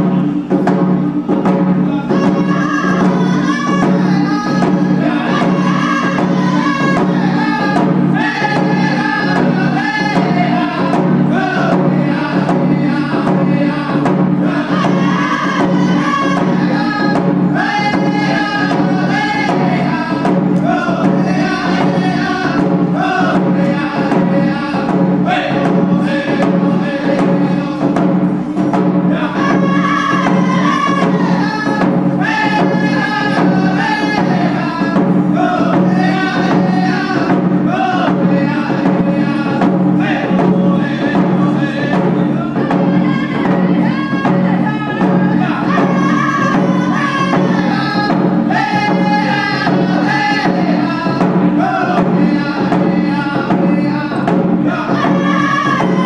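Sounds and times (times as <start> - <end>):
frame drums beating: 0.0 - 56.0
men singing in unison: 1.4 - 56.0.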